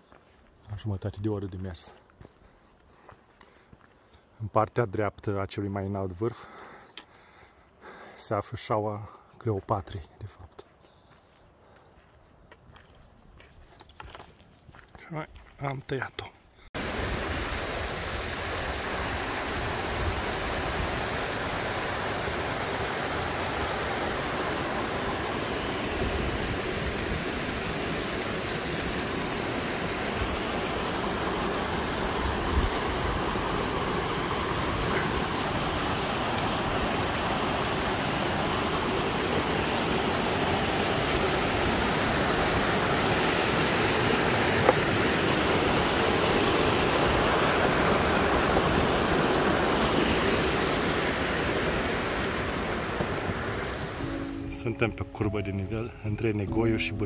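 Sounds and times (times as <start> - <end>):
mountain stream rushing: 16.8 - 54.4.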